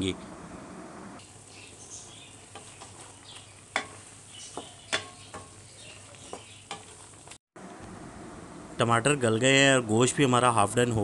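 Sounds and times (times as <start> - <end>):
meat sizzling: 1.2 - 7.4
wooden spoon knocking on pan: 2.5 - 7.0.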